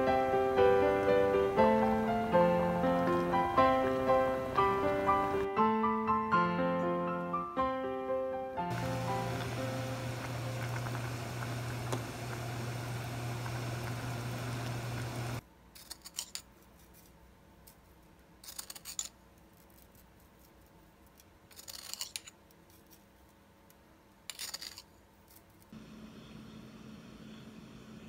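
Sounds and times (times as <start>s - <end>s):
syrup simmering hiss: 8.7s - 15.4s.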